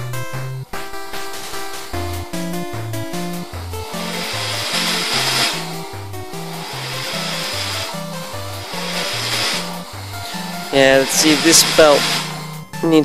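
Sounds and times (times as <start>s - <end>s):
background music with bass line: 0.0s - 13.0s
projector mechanism whirring and scraping: 3.8s - 12.6s.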